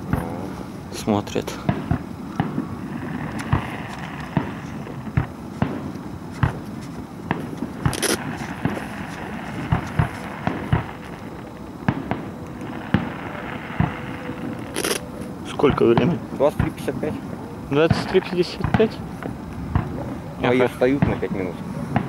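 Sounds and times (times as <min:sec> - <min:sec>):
fireworks bursting with bangs: 0:00.0 - 0:22.0.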